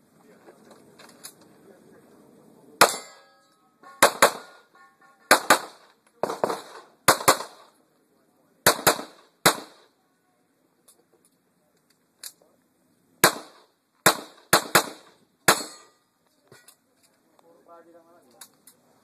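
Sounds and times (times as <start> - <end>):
pistol shots: 4.0 - 4.6, 5.3 - 7.7, 8.6 - 9.9, 13.2 - 15.9.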